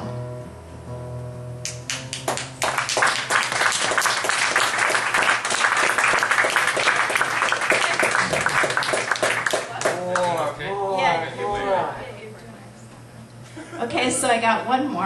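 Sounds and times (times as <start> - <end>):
audience applauding: 1.7 - 10.6.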